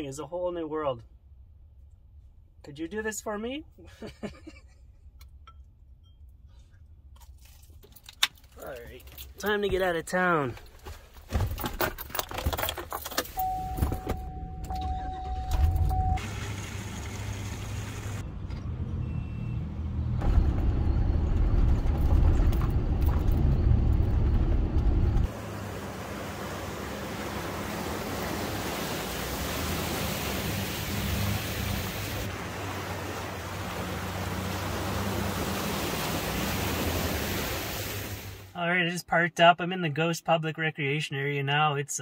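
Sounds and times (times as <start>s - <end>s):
van engine running: 13.4s - 37.6s
water spray hissing: 25.3s - 38.5s.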